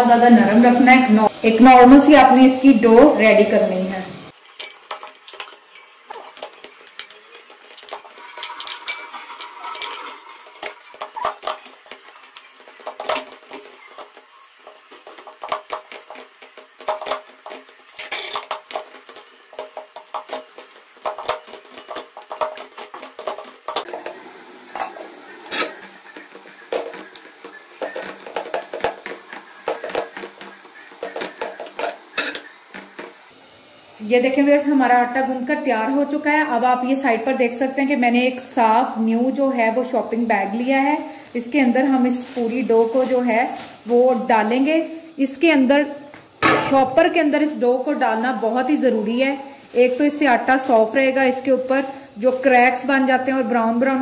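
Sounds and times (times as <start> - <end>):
dough kneaded in steel bowl: 46.4 - 54.0.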